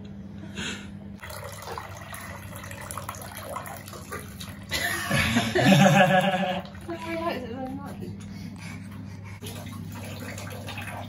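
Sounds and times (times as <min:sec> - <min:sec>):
water pouring into a bath: 0:01.2 - 0:05.2, 0:09.4 - 0:11.0.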